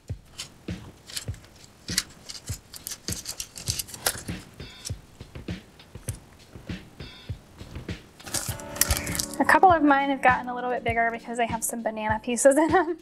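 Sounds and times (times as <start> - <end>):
plastic bag crinkling: 0.3 - 4.9, 8.2 - 9.6.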